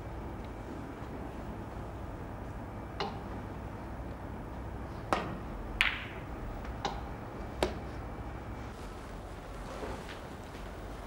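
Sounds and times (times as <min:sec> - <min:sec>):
low background hum: 0:00.0 - 0:11.0
snooker balls clicking: 0:05.1 - 0:07.0.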